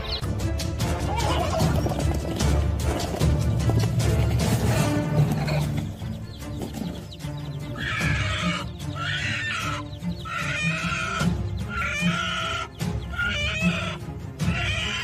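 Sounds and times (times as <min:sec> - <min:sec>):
background music with low notes: 0:00.0 - 0:15.0
hen squawking: 0:05.2 - 0:15.0.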